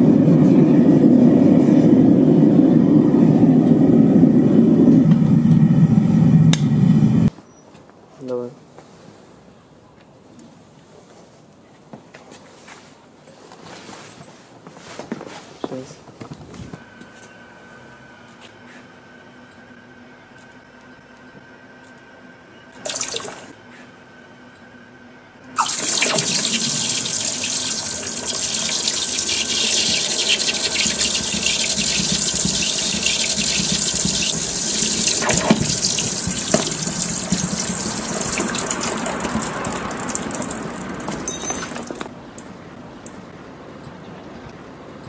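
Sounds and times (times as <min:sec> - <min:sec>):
molten metal sizzling in water: 0:25.6 - 0:42.0.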